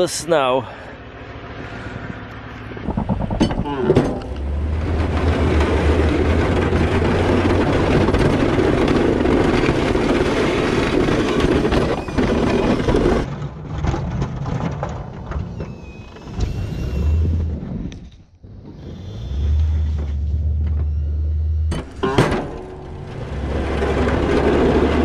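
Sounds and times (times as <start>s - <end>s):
truck engine humming: 0.0s - 13.2s, 19.0s - 25.0s
plow blade rushing through snow: 4.2s - 13.3s, 18.7s - 25.0s.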